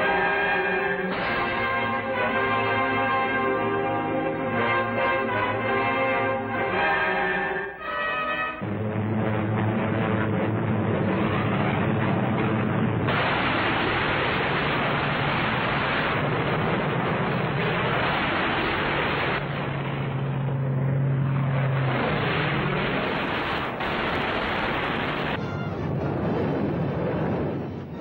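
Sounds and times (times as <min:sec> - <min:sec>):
propeller aircraft engine drone: 0:08.6 - 0:13.3, 0:16.2 - 0:28.0
dense rushing noise: 0:08.6 - 0:28.0.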